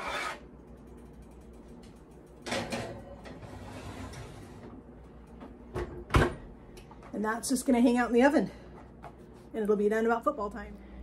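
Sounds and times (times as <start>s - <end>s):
pot scraping onto oven rack: 0.0s - 0.4s, 2.5s - 4.7s.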